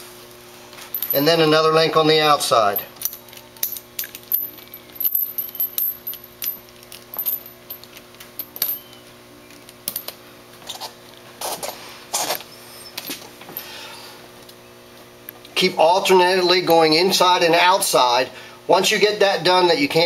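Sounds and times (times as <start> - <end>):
chain scraping: 0.9 - 1.4, 2.5 - 9.0
metal chain links clinking: 0.9 - 1.6, 2.4 - 9.0.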